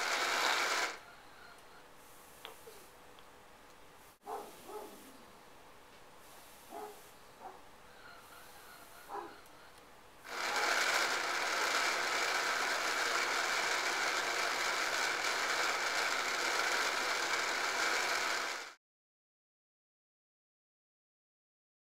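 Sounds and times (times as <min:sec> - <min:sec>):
toy mechanical whirring rattle: 0:00.0 - 0:01.0, 0:10.3 - 0:18.8.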